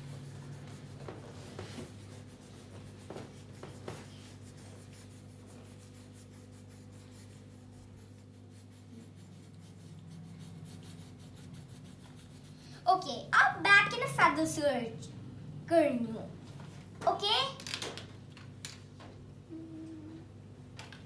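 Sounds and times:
pencil scratching on paper: 0.0s - 13.0s
steady low hum: 0.0s - 17.1s, 18.2s - 21.0s.

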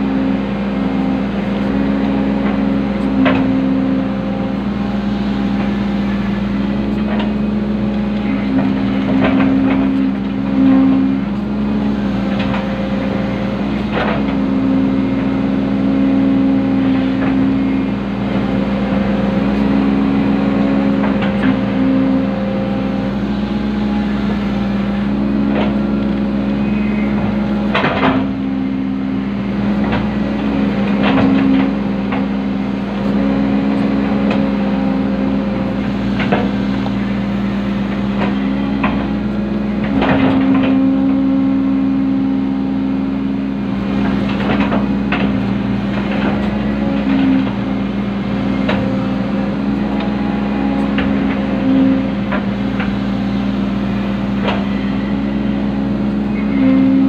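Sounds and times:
excavator diesel engine running: 0.0s - 57.0s
knocks and clunks: 8.0s - 10.4s, 27.0s - 28.5s, 39.8s - 40.8s.

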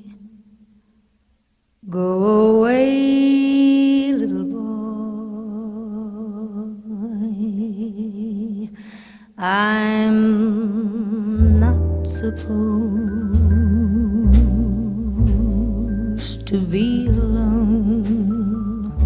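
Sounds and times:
slow music with vibrato notes: 9.8s - 19.0s.

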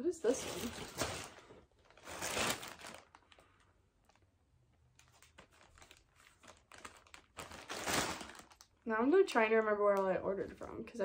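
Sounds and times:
plastic package crinkling: 0.3s - 8.9s.

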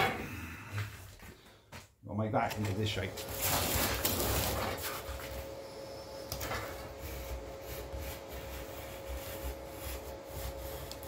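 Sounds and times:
knife cutting cardboard: 6.7s - 11.0s.

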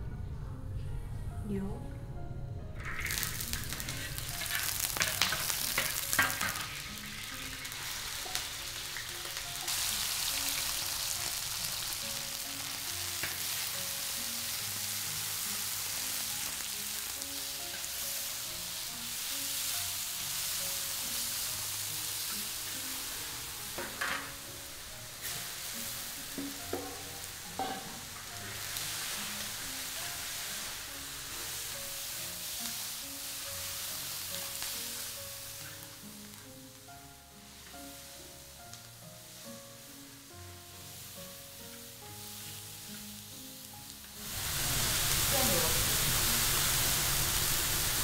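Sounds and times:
meat sizzling in hot oil: 2.8s - 48.0s
spatula scraping wok: 2.9s - 36.5s.

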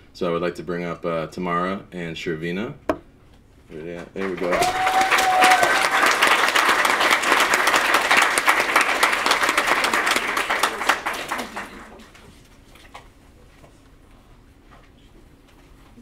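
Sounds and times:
audience applauding: 4.2s - 12.2s.

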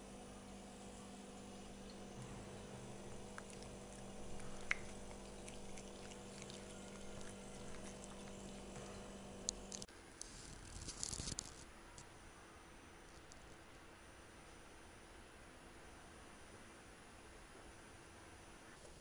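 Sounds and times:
electrical hum: 0.0s - 19.0s
cats licking food off spoon: 3.0s - 9.9s.

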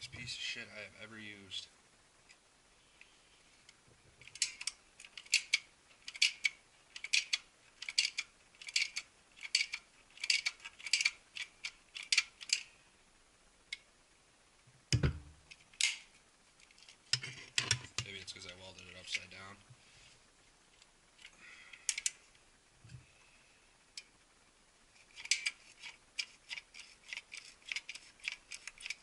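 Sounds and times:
thump on bench: 15.0s - 15.3s.

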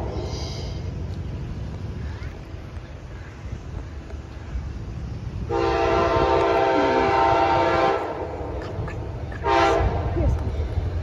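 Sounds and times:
train rumble: 0.0s - 11.0s
train air horn blasts: 5.4s - 8.3s, 9.4s - 10.1s.

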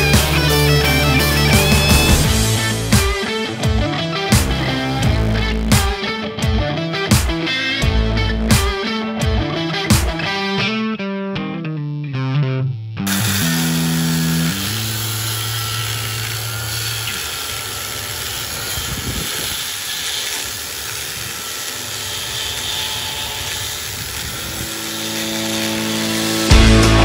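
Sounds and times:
angle grinder cutting steel: 0.0s - 10.5s, 13.1s - 27.0s.

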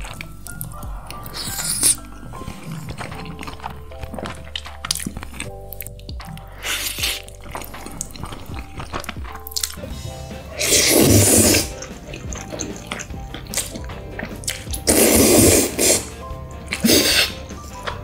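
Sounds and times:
background music: 0.0s - 18.0s
wet eating sounds: 0.0s - 18.0s
person slurping noodles: 6.5s - 17.7s.

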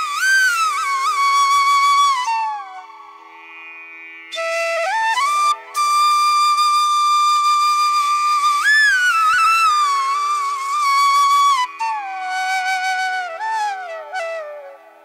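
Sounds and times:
solo flute melody: 0.0s - 3.6s, 4.3s - 15.0s
faint steady drone: 0.0s - 7.7s.

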